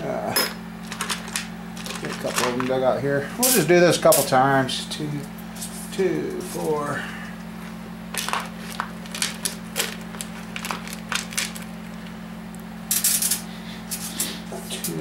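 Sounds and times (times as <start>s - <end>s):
steady low hum: 0.0s - 15.0s
metal parts clinking and rattling: 0.8s - 2.8s, 8.1s - 11.7s, 12.9s - 14.1s.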